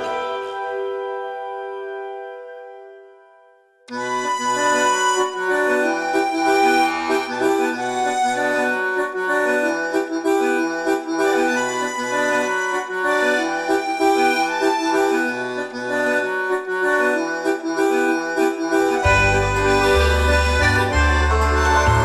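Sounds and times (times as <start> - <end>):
held chords: 3.9 - 22.0
repeating bass line: 18.9 - 22.0.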